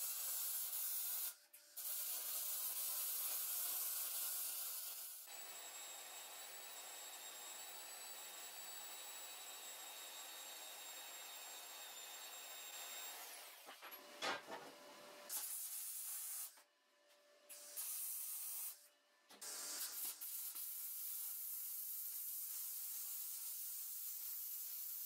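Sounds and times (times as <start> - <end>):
welder arcing crackling hiss: 15.3 - 16.6, 17.5 - 18.8, 19.4 - 25.0.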